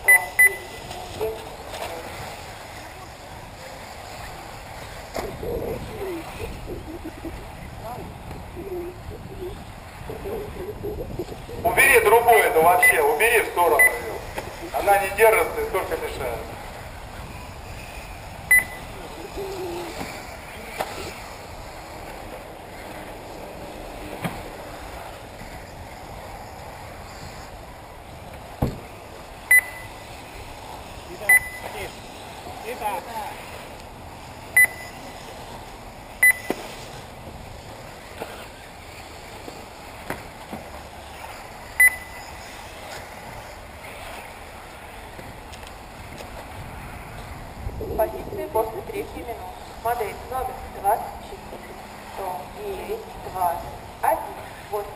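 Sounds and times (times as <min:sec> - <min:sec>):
short high beep: 0:00.0 - 0:00.8, 0:12.8 - 0:13.0, 0:13.8 - 0:14.1, 0:18.5 - 0:18.9, 0:29.5 - 0:30.0, 0:31.3 - 0:31.7, 0:34.6 - 0:35.0, 0:36.2 - 0:36.6, 0:41.8 - 0:42.2
open-air hiss: 0:00.0 - 0:54.9
steady outdoor noise: 0:00.0 - 0:54.9.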